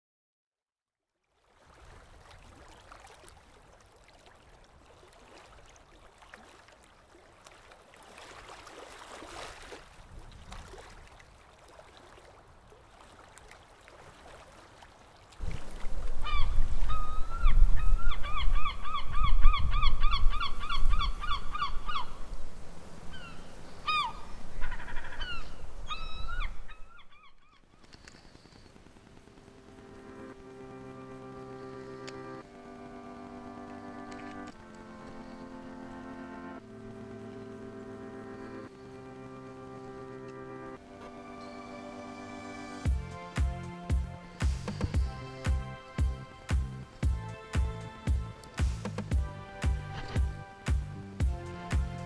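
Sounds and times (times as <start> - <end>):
wind buffeting microphone: 15.4 - 23.2
gull calling: 16.1 - 22.2, 23.1 - 27.6.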